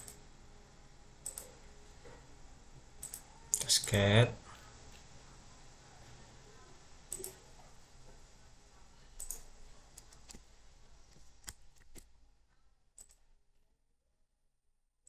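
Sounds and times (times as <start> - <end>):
computer mouse clicking: 0.0 - 0.2, 1.2 - 1.6, 3.0 - 4.0, 7.1 - 7.4, 9.2 - 10.5, 11.1 - 12.1, 13.0 - 13.2
faint steady hum: 0.0 - 13.9.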